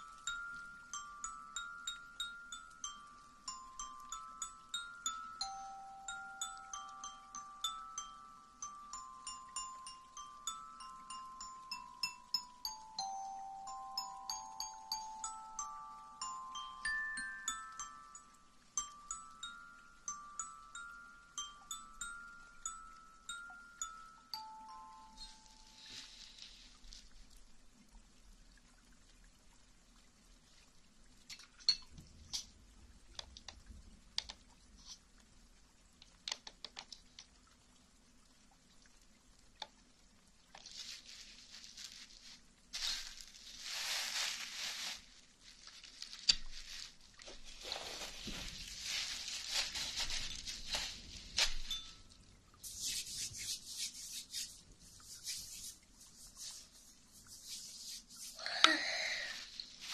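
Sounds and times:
small clicks and taps: 0:33.1 - 0:35.0, 0:36.0 - 0:37.4
hands rubbing together: 0:52.6 - 0:59.9
wet hissy rubbing: 0:52.6 - 0:59.9.

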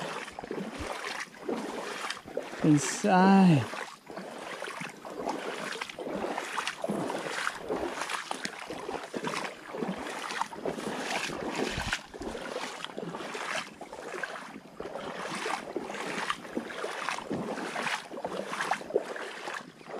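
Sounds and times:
wading steps sloshing in water: 0:00.0 - 0:19.9.

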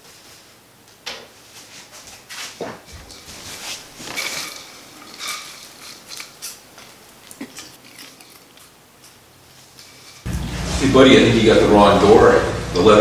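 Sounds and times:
snacks clattering and rustling: 0:02.7 - 0:10.2.

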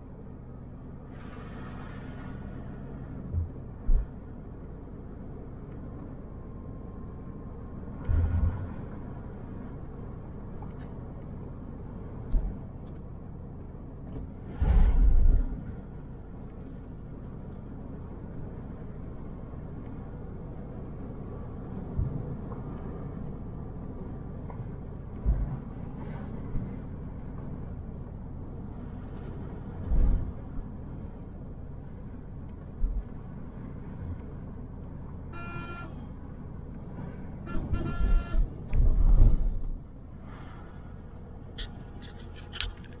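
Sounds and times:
vehicle horn: 0:35.3 - 0:36.1, 0:37.5 - 0:38.5.

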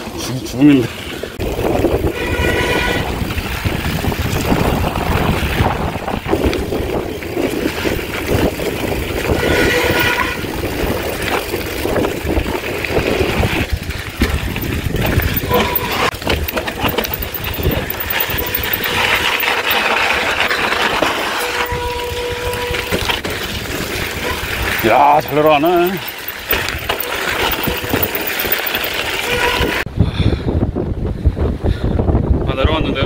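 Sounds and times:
bike rattling on rough ground: 0:00.1 - 0:29.8
wind buffeting microphone: 0:01.3 - 0:33.0
short squeals: 0:14.6 - 0:23.0.

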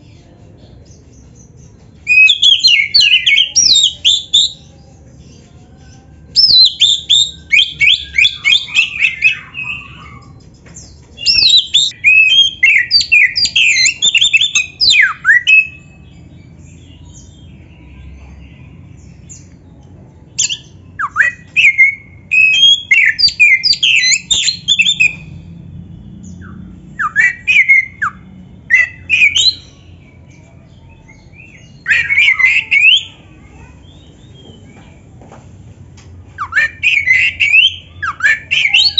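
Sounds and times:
songbird whistling and chattering: 0:02.0 - 0:04.7, 0:06.3 - 0:10.5, 0:11.2 - 0:17.6, 0:20.3 - 0:25.4, 0:26.2 - 0:34.5, 0:36.4 - 0:38.9.

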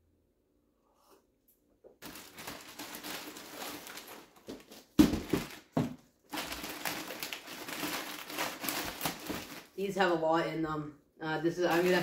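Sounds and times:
packaging rustling and crinkling: 0:02.0 - 0:09.8, 0:11.6 - 0:12.0.

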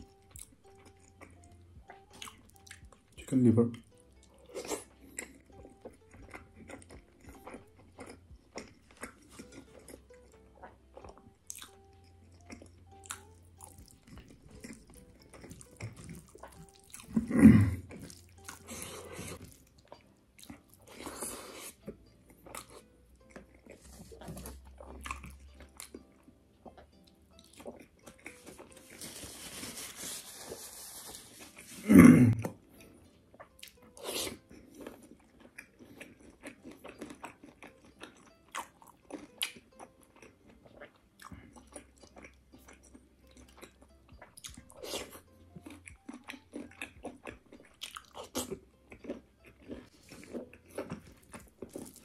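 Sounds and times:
wet chewing and lip smacking: 0:00.0 - 0:03.2, 0:03.8 - 0:28.8, 0:32.5 - 0:52.0
tissue paper rustling: 0:28.8 - 0:31.8.

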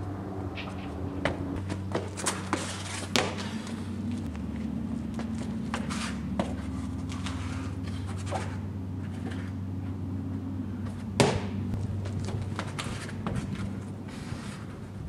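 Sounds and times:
steady low hum: 0:00.0 - 0:15.0
shoes scraping against brick: 0:00.6 - 0:09.5, 0:10.8 - 0:15.0
sharp thud: 0:11.2 - 0:11.6.

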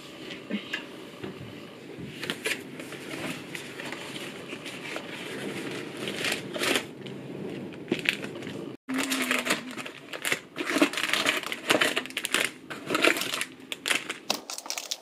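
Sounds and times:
cardboard flaps scraping: 0:02.0 - 0:08.8
plastic bag crinkling: 0:07.9 - 0:15.0.

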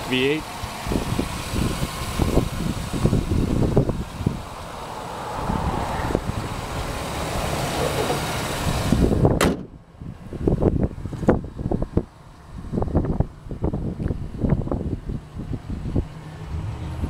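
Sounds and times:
car engine running: 0:00.0 - 0:17.0
car hood slamming shut: 0:09.3 - 0:09.8.

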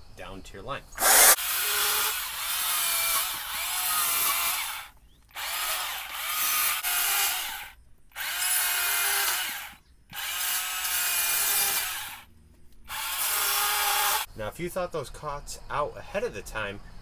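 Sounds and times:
chainsaw cutting log: 0:01.0 - 0:12.3, 0:12.9 - 0:14.3.

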